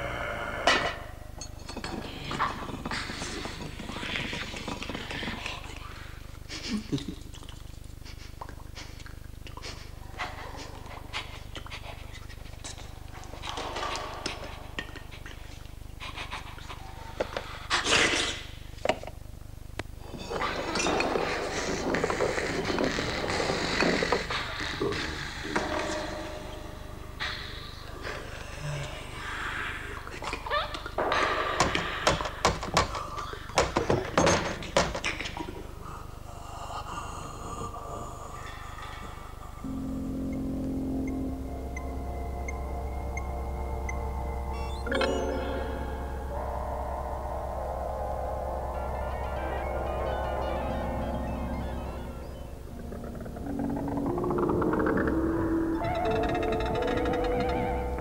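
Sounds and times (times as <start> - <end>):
faint steady tones: 25.4 - 30.2, 38.8 - 58.0
steady low hum: 35.8 - 58.0
noisy burst: 39.6 - 58.0.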